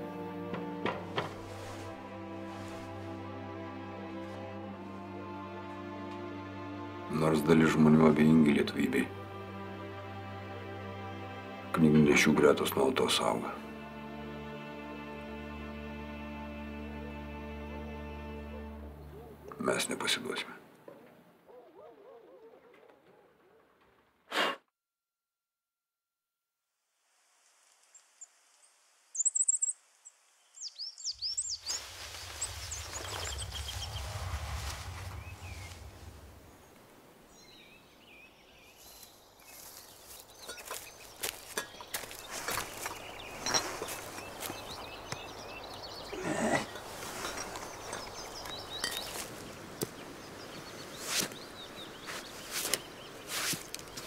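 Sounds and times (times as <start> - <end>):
songbirds chirping: 0.0 - 23.9, 27.9 - 54.0
knocks in undergrowth: 0.5 - 3.0, 31.6 - 36.5, 39.5 - 45.4, 51.0 - 54.0
rustling in undergrowth: 0.6 - 5.0, 27.0 - 54.0
steady rushing noise: 31.6 - 37.9
low rumble: 31.8 - 37.5.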